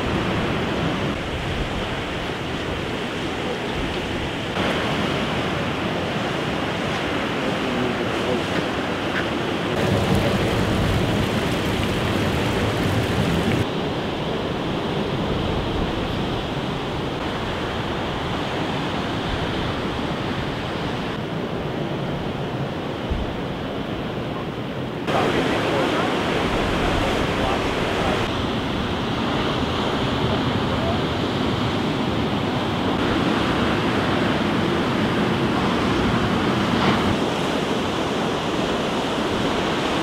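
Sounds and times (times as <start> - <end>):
ocean surf: 0.0 - 40.0
wind on microphone: 8.6 - 25.4.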